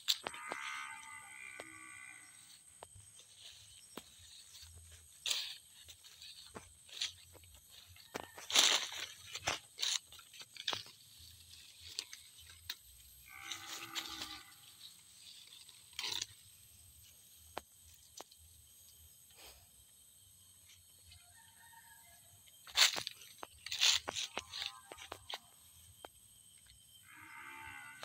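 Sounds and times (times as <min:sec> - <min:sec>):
plants rustling and snapping: 0:03.9 - 0:10.9.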